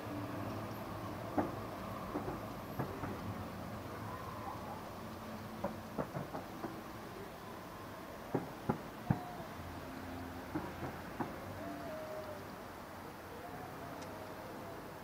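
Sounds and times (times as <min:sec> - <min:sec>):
fireworks popping: 0:01.3 - 0:03.4, 0:05.6 - 0:07.0, 0:08.2 - 0:09.4, 0:10.5 - 0:11.5.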